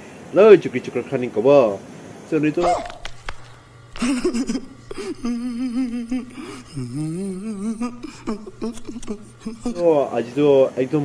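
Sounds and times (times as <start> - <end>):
man crying out wordlessly: 4.1 - 9.8
man gasping: 4.8 - 9.8.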